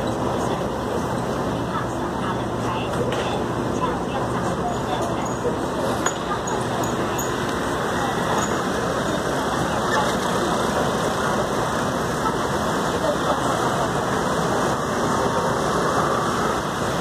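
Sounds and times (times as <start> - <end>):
motor scooters running: 4.2 - 17.0.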